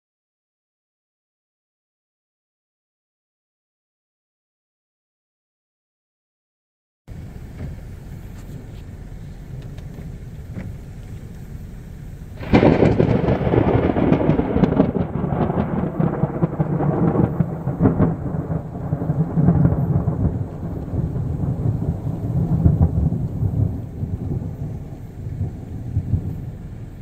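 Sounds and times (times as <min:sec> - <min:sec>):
thunder crack and rumble: 0:07.1 - 0:27.0.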